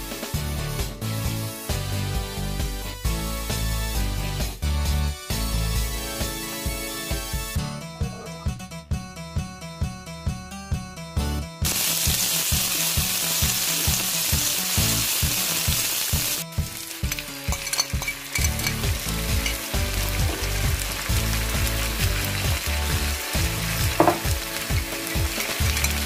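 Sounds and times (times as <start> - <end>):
background music with steady beat: 0.0 - 26.0
vegetables sizzling in oil: 11.6 - 26.0.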